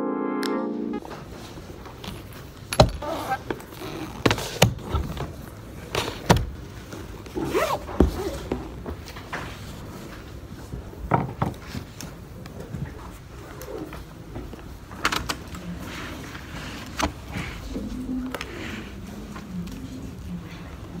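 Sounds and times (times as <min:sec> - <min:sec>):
handling clicks and rustling: 0:01.8 - 0:10.1.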